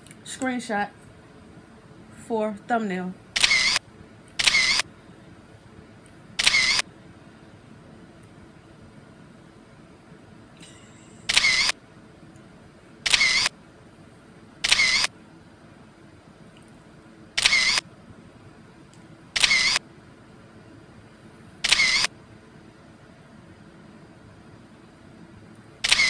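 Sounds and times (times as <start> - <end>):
camera shutter clicks: 3.4 - 3.8, 4.4 - 4.9, 6.4 - 6.8, 11.3 - 11.8, 13.1 - 13.5, 14.6 - 15.1, 17.4 - 17.8, 19.4 - 19.8, 21.6 - 22.1.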